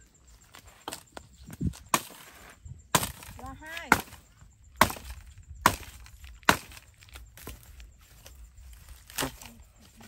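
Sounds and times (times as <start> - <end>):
machete chopping a branch: 1.6 - 7.7, 9.0 - 9.6.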